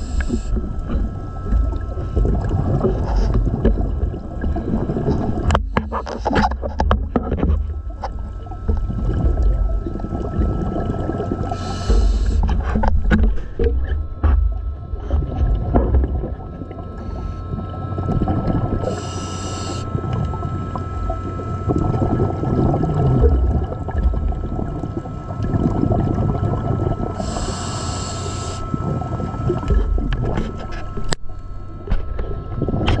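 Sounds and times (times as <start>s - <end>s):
exhaled bubbles rumbling: 0.0s - 33.0s
regulator hissing inhalations: 11.5s - 12.4s, 18.9s - 19.9s, 27.2s - 28.7s.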